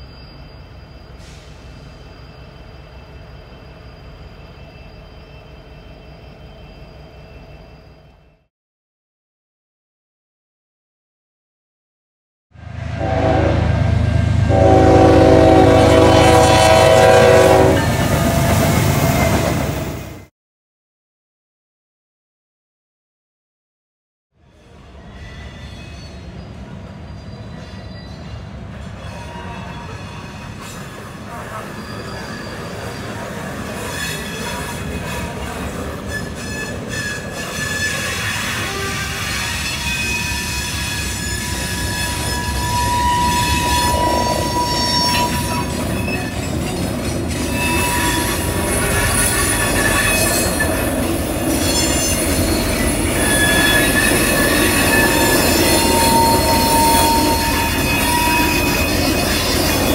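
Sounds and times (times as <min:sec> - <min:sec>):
train wheels squealing: 0:00.0 - 0:08.5, 0:17.8 - 0:20.3, 0:24.4 - 0:59.9
low rumble of wheels on rail: 0:12.6 - 0:20.3, 0:24.4 - 0:59.9
locomotive air horn blasts: 0:13.0 - 0:13.8, 0:14.4 - 0:18.0.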